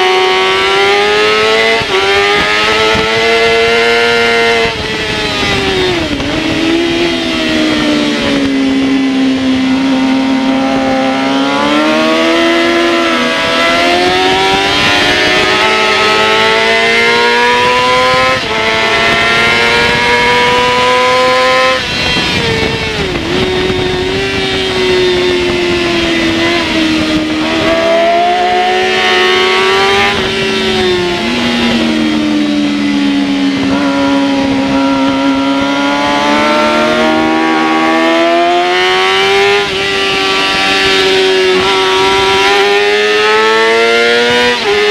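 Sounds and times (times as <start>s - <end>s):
motorcycle engine revving and shifting: 0.0s - 44.9s
wind noise rushing: 0.0s - 44.9s.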